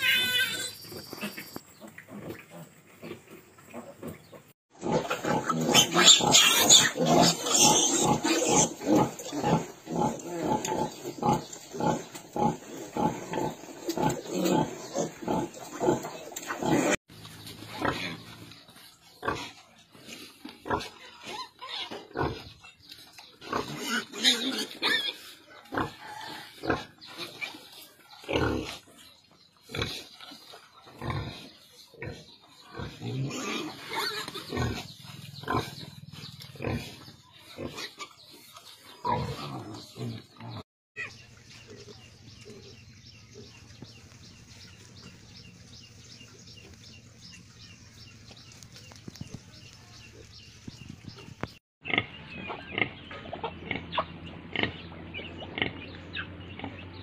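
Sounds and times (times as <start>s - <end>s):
piglets squealing and grunting: 0.0s - 4.2s, 4.8s - 17.0s, 20.6s - 22.7s, 23.4s - 28.9s, 29.6s - 41.3s, 51.8s - 56.8s.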